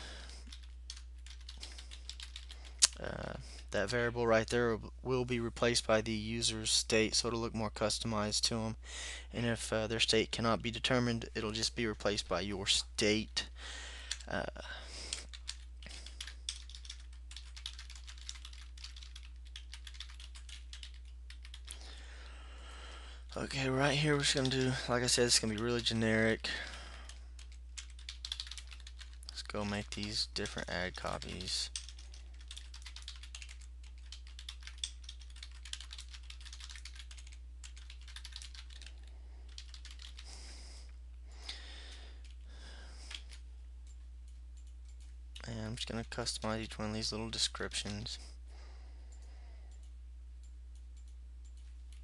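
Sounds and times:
low electrical hum: 0.0s - 52.0s
typing on a keyboard: 0.5s - 3.0s, 15.1s - 21.8s, 27.1s - 40.3s.

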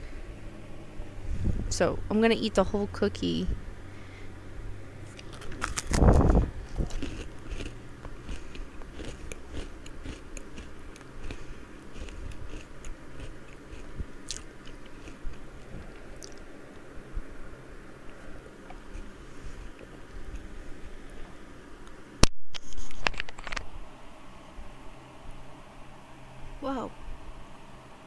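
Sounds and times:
cookie crunching bite: 5.1s - 16.5s
chewing with crunches: 5.1s - 17.0s, 18.0s - 21.2s.

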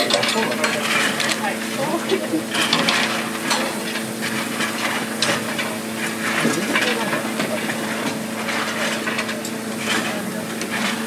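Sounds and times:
steam locomotive hissing: 0.0s - 11.0s.

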